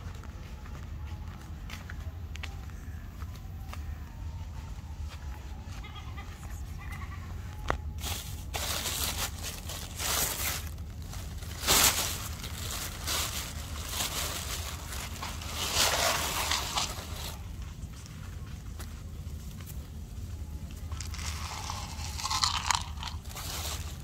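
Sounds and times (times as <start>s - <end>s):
dry rustling and crinkling: 5.8s - 24.0s.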